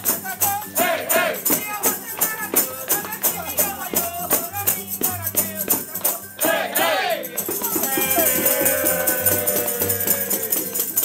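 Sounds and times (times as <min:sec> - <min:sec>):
group singing: 0:00.1 - 0:04.2, 0:06.1 - 0:11.0
frame drum beating: 0:07.4 - 0:10.5.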